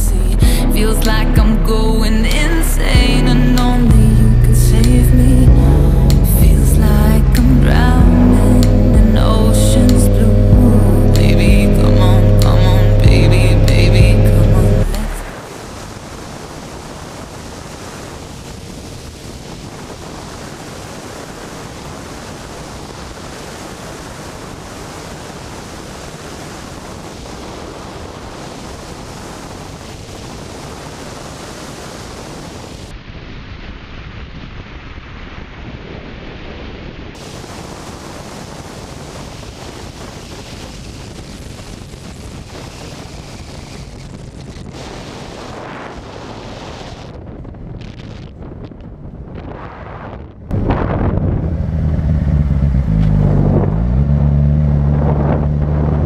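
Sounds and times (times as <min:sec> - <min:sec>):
faint motorcycle engine: 0:00.4 - 0:15.2, 0:50.6 - 0:56.0
wind buffeting microphone: 0:03.0 - 0:33.0, 0:37.1 - 0:56.0.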